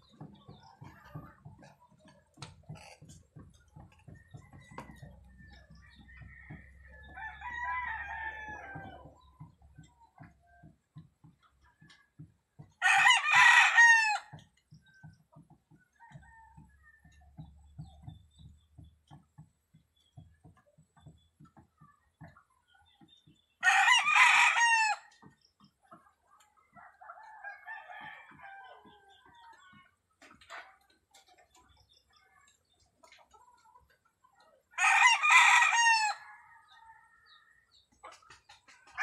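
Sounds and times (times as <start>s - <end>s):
rooster crowing: 34.8s - 36.4s.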